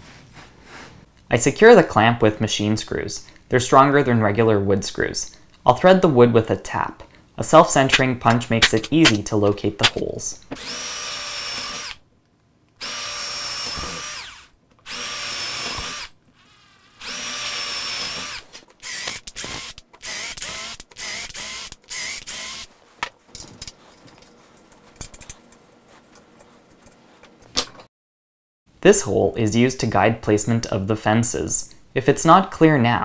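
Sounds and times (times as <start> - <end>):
cordless drill boring into wood: 10.6 - 12.0, 12.8 - 16.2, 17.0 - 22.7
handling clicks and rustles: 22.8 - 27.9.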